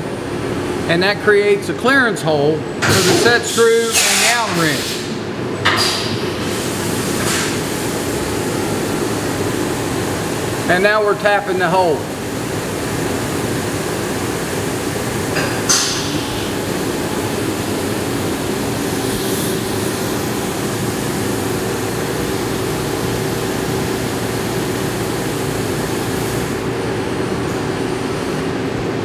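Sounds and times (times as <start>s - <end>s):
machine hum: 2.6s - 29.0s
coolant splashing hiss: 2.8s - 10.7s, 11.9s - 26.7s.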